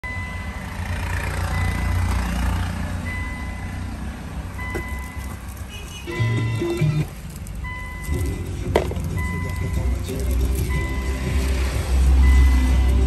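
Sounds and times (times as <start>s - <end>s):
repeating electronic beep: 3.1s - 3.9s, 6.0s - 13.0s.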